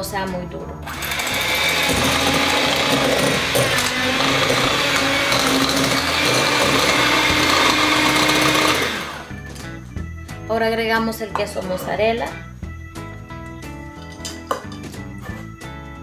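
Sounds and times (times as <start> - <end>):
electric hand mixer whine: 0.9 - 9.4.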